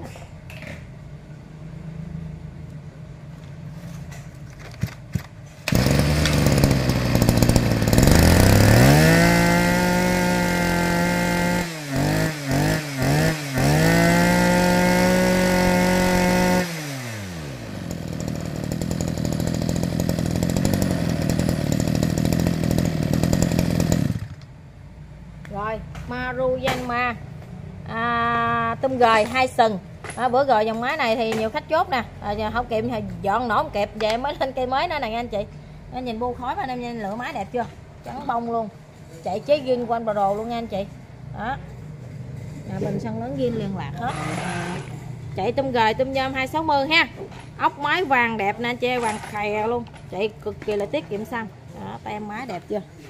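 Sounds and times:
brush cutter engine revving: 5.6 - 24.4, 43.9 - 45.4.

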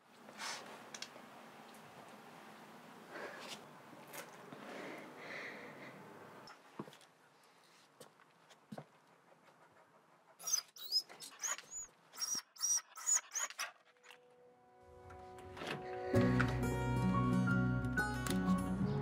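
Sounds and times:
dog whimpering: 10.4 - 13.8
music: 14.3 - 19.0.

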